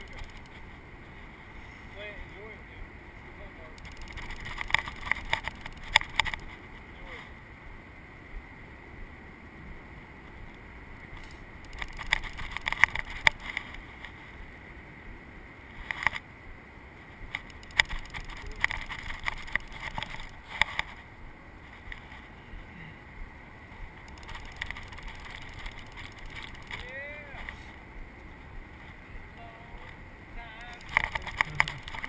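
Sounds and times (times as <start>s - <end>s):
fishing reel clicking: 0.0s - 0.5s, 3.7s - 6.4s, 11.6s - 13.5s, 17.4s - 20.9s, 24.0s - 27.6s, 30.6s - 32.0s.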